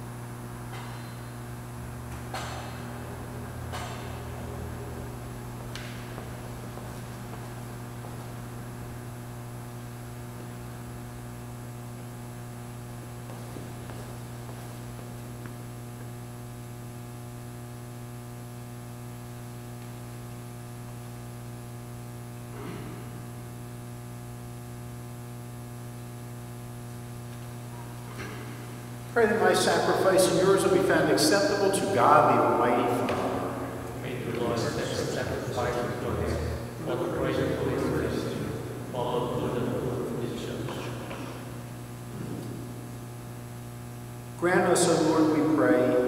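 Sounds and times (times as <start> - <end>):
electrical mains hum: 0.0 - 46.0.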